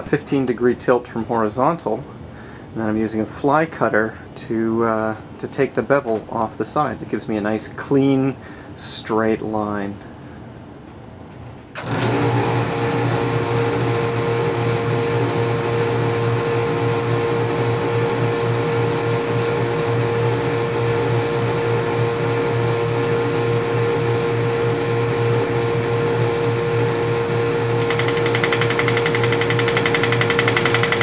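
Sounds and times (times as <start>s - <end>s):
lathe motor humming: 11.8s - 31.0s.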